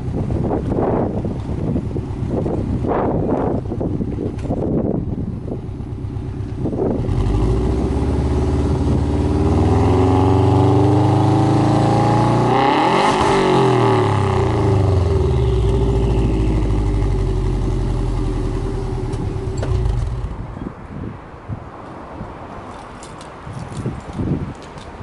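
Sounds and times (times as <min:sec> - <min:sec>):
car engine revving: 0:06.8 - 0:20.5.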